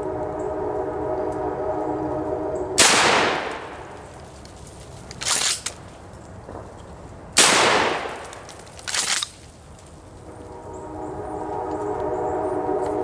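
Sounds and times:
shotgun shots with echo: 2.8 - 3.6, 7.4 - 8.3
gun action clattering and clicking: 5.1 - 5.8.

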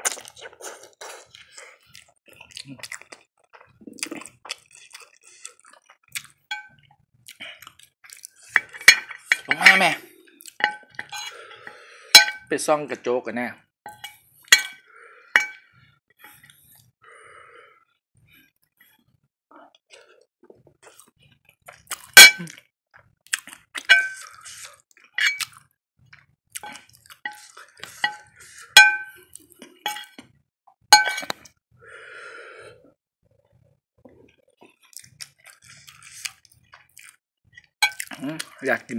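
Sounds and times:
metal spoon clinking on plate: 8.6 - 10.0, 12.2 - 12.5, 13.9 - 14.8, 15.4 - 15.6, 23.9 - 24.3, 25.2 - 25.5, 28.8 - 29.1, 29.9 - 30.1, 31.0 - 31.4.

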